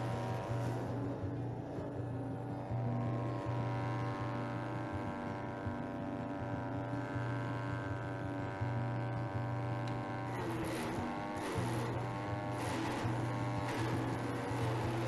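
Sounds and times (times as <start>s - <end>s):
garden chipper engine running: 0.0s - 1.2s, 7.0s - 15.0s.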